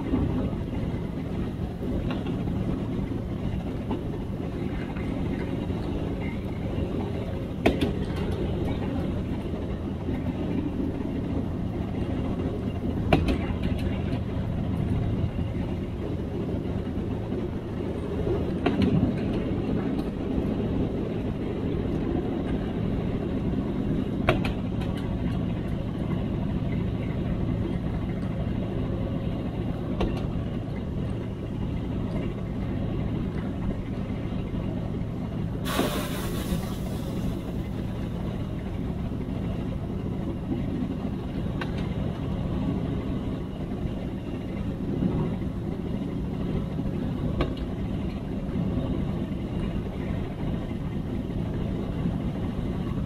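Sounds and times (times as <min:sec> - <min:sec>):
diesel engine drone: 0:00.0 - 0:53.0
air hiss: 0:35.6 - 0:37.5.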